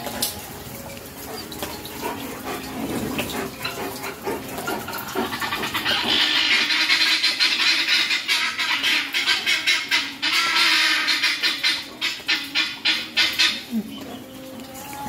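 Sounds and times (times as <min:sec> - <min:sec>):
guineafowl harsh rapid chatter: 0:04.8 - 0:13.7.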